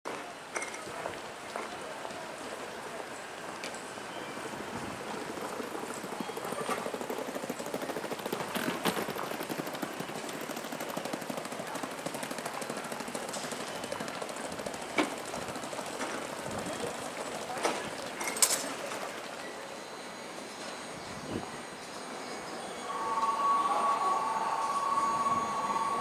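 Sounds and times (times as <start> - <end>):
rapid crackling patter: 4.4 - 19.5.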